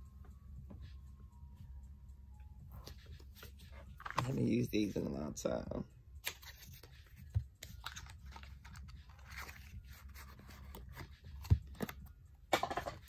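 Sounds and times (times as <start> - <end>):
cards shuffling: 2.8 - 5.1, 6.2 - 12.2.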